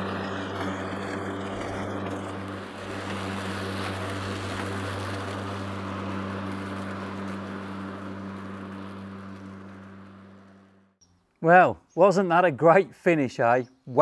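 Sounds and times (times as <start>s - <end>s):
electric lawn mower humming: 0.0s - 11.2s.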